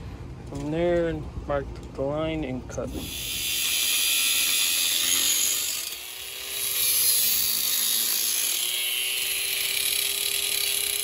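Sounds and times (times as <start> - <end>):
angle grinder cutting metal: 2.9 - 11.0
grinder motor whine: 2.9 - 11.0.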